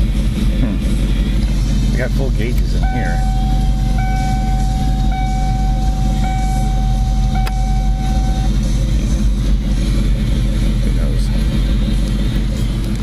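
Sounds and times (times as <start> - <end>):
car engine idling: 0.0 - 13.0
high electronic tone: 2.8 - 8.6.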